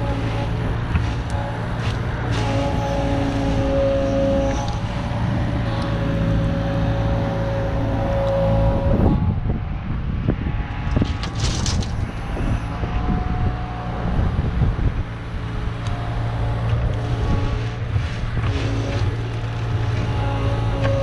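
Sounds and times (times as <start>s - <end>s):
bucket working over ground: 0.0s - 7.9s, 10.9s - 12.1s, 16.2s - 21.0s
hydraulic whines: 0.0s - 9.3s, 10.9s - 21.0s
diesel engine running: 0.0s - 21.0s.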